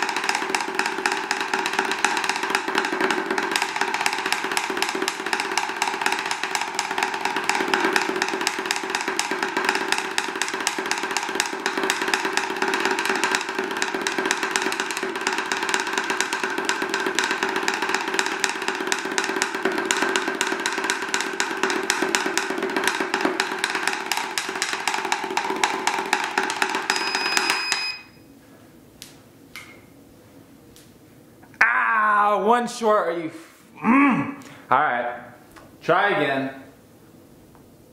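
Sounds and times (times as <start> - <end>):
drumsticks roll on practice pad: 0.0 - 28.0
short electronic beep: 26.9 - 28.2.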